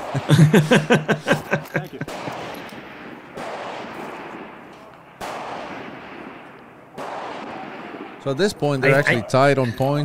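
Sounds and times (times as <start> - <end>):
distant rifle shots: 2.0 - 8.2.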